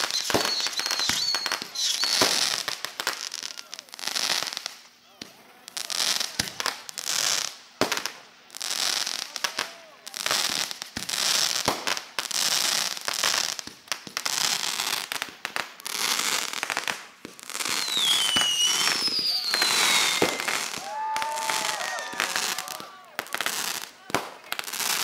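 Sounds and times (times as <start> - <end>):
firework whistles gliding down: 0.0 - 3.6, 17.6 - 23.9
fireworks crackling and popping: 0.0 - 25.0.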